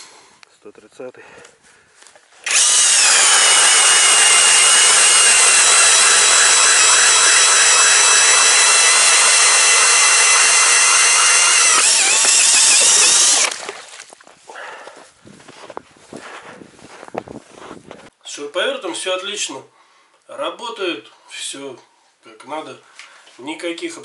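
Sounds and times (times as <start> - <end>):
cordless drill motor whine: 2.4 - 13.6
ice auger scraping ice: 2.4 - 14.0.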